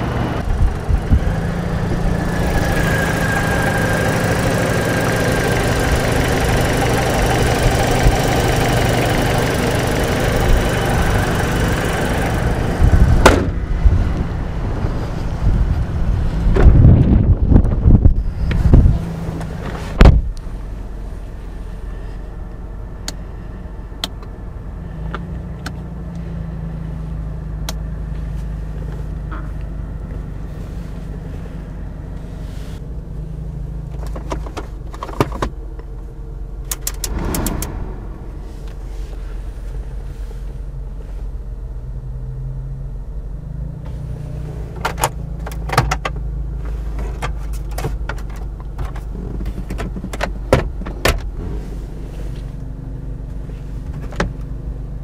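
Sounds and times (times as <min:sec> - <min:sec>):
car engine idling: 0:00.0 - 0:16.2, 0:17.8 - 0:43.5.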